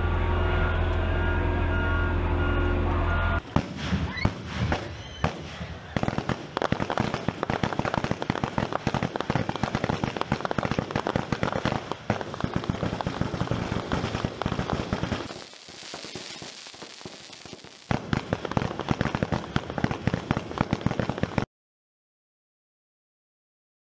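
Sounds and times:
fireworks crackling: 0:03.4 - 0:21.5.

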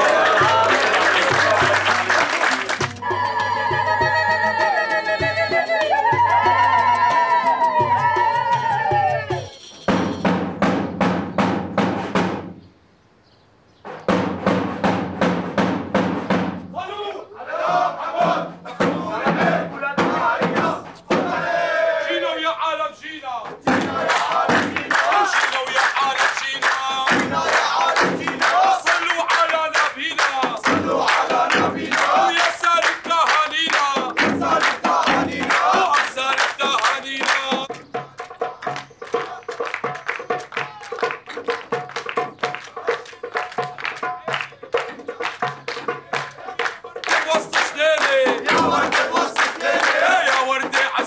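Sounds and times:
large drum beaten: 0:00.0 - 0:02.2, 0:02.8 - 0:12.6, 0:13.9 - 0:16.9, 0:17.6 - 0:21.6, 0:23.4 - 0:26.2, 0:26.8 - 0:29.4, 0:30.1 - 0:38.2, 0:43.6 - 0:51.0
men chanting and shouting: 0:00.0 - 0:09.5, 0:16.7 - 0:41.3, 0:42.3 - 0:51.0
rhythmic hand-clapping: 0:00.0 - 0:10.4, 0:23.6 - 0:51.0
lead voice calling out: 0:16.7 - 0:17.6.

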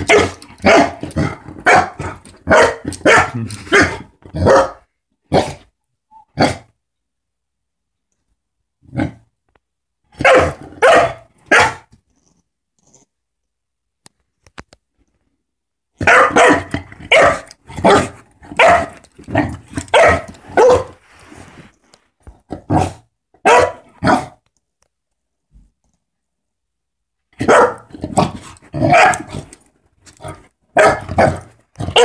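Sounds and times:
puppy barking: 0:00.0 - 0:01.0, 0:01.6 - 0:05.6, 0:10.2 - 0:11.9, 0:16.0 - 0:19.0, 0:19.9 - 0:21.0, 0:22.7 - 0:24.4, 0:27.4 - 0:27.9, 0:28.8 - 0:29.3, 0:30.7 - 0:32.0.

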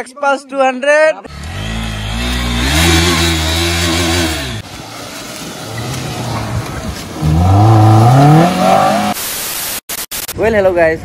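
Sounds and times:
motorcycle engine revving: 0:01.3 - 0:04.8, 0:05.6 - 0:09.2.

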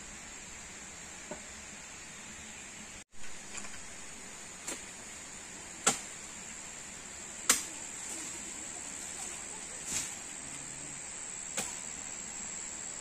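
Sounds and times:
high-pitched insect drone: 0:06.4 - 0:13.0.

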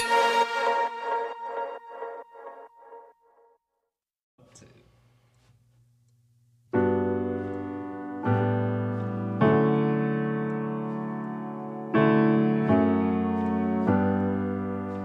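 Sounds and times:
slow piano chords: 0:06.8 - 0:15.0.

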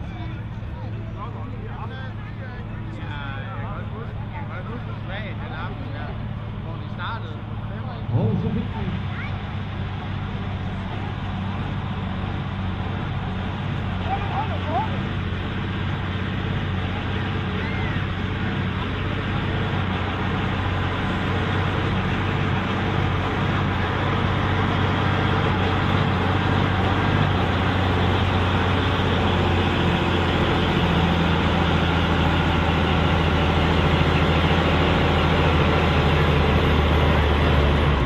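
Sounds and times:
tractor diesel engine under load: 0:00.0 - 0:38.0.

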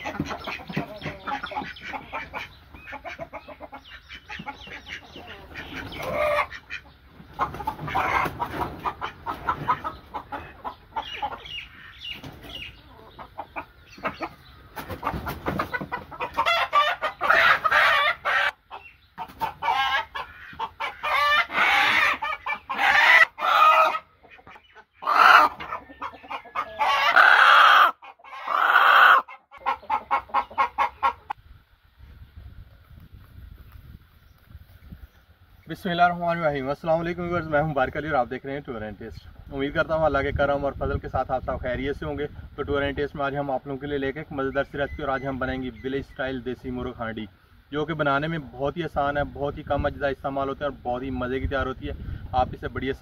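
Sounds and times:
rooster squawking: 0:00.0 - 0:12.1, 0:14.0 - 0:18.6, 0:19.4 - 0:31.4
chickens clucking: 0:00.0 - 0:53.0.

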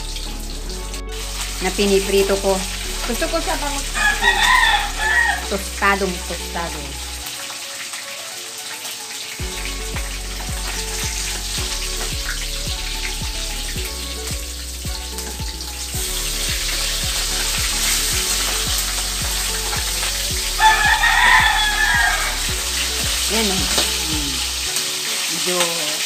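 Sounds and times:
background music with beat: 0:00.0 - 0:25.5
fish sizzling in oil: 0:00.0 - 0:26.0
spatula turning fish: 0:08.6 - 0:25.5.

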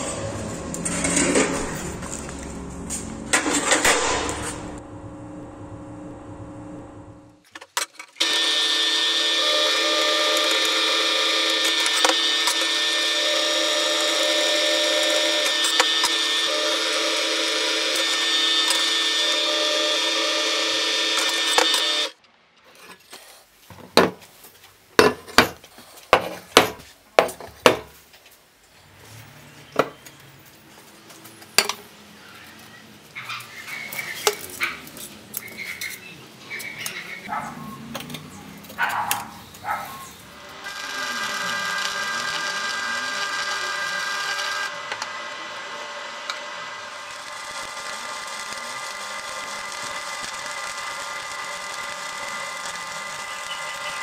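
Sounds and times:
welding arc crackling and hissing: 0:46.7 - 0:54.0.

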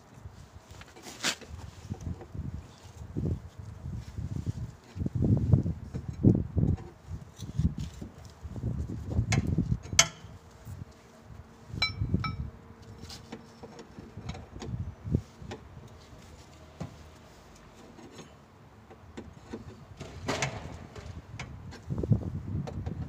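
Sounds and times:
metallic clinks and knocks of tools: 0:11.8 - 0:12.4
ringing metal pings: 0:11.8 - 0:12.4.

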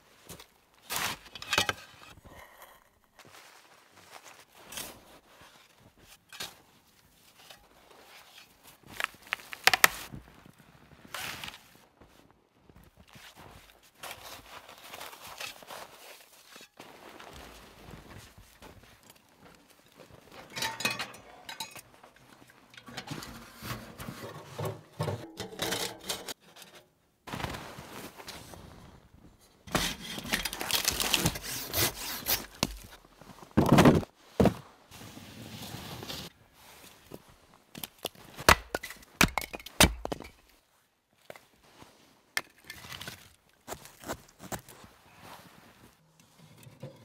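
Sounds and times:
metal clinking and scraping: 0:20.3 - 0:26.8.

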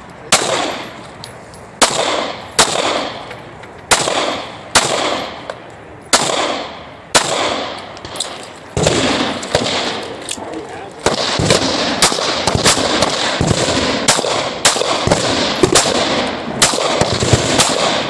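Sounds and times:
handgun shots with echo: 0:01.8 - 0:03.3.

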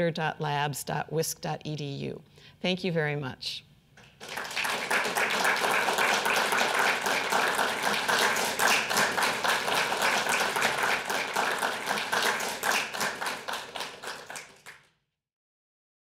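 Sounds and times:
audience applauding: 0:04.2 - 0:14.9.

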